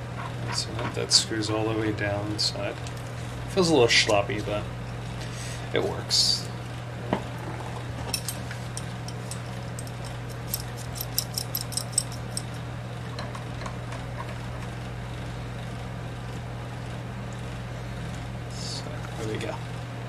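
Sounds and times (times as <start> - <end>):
steady low hum: 0.0 - 20.0
metal wrench clicking: 8.1 - 12.6.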